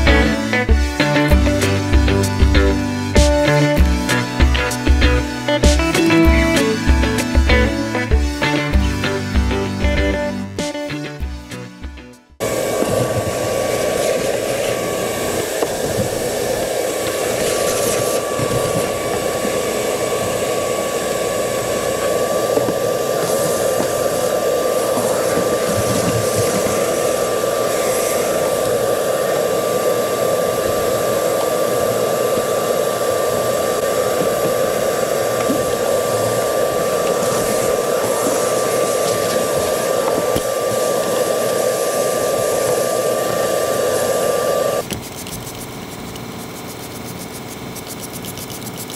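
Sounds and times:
vacuum motor droning with whine: 0:12.4 - 0:48.9.

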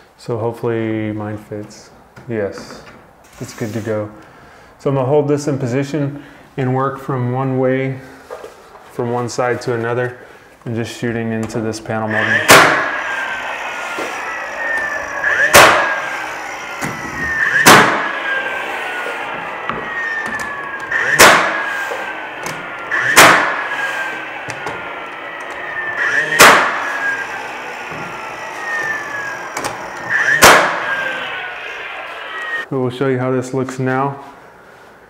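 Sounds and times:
motor whine winding down: 0:11.9 - 0:32.7
nail gun shots: 0:12.3 - 0:13.0, 0:15.4 - 0:16.2, 0:17.6 - 0:18.1, 0:20.4 - 0:21.7, 0:22.4 - 0:23.6, 0:26.3 - 0:26.8, 0:30.4 - 0:30.9.

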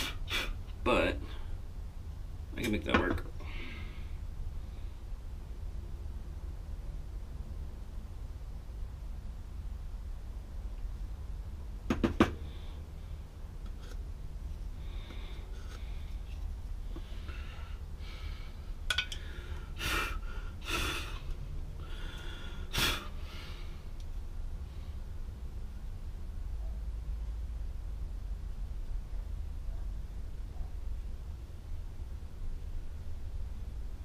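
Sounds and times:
man puffing breathy exhalations: 0:00.0 - 0:00.6, 0:19.2 - 0:23.8
steady low hum: 0:00.0 - 0:34.0.

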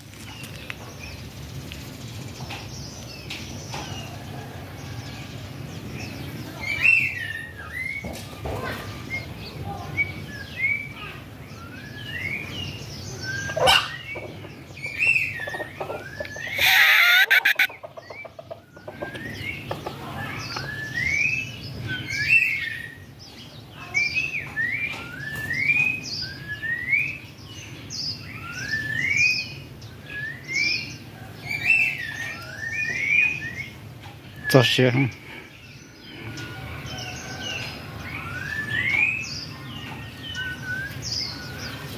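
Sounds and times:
small bird chirping: 0:06.0 - 0:37.1.

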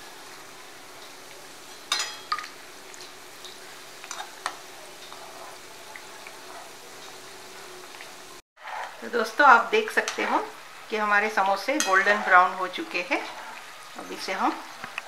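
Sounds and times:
deep-frying sizzle in oil: 0:00.0 - 0:15.0
metal spoon clinking on pan: 0:01.7 - 0:02.5.

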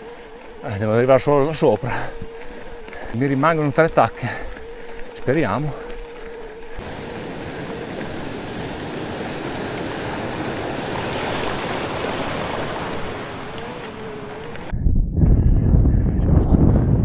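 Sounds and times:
electric bike motor whine: 0:00.0 - 0:14.8
continuous rushing noise: 0:06.8 - 0:14.8.

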